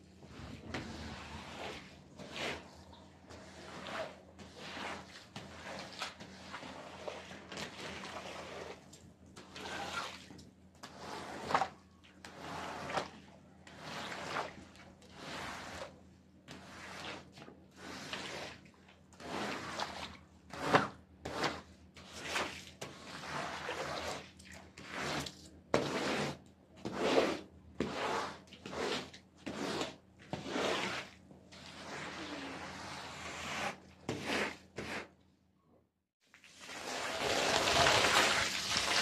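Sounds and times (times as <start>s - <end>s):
squeegee scraping wet rug: 0.2s - 35.2s, 36.3s - 39.0s.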